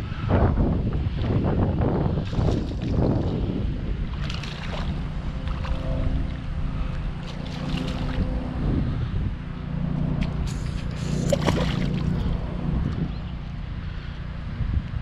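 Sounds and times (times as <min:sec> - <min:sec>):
wind buffeting microphone: 0:00.0 - 0:15.0
fish thrashing and splashing: 0:04.1 - 0:06.0, 0:07.2 - 0:08.4, 0:10.2 - 0:12.4.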